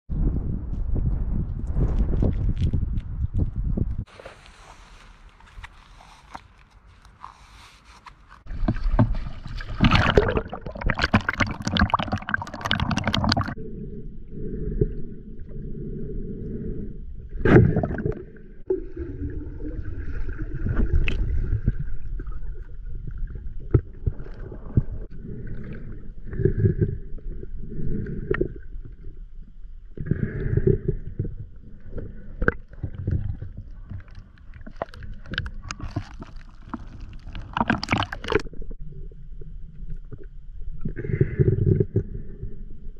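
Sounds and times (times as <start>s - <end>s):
underwater rumble and gurgling: 0.1s - 4.1s, 8.4s - 42.9s
water splashing: 8.4s - 13.6s, 31.9s - 38.6s.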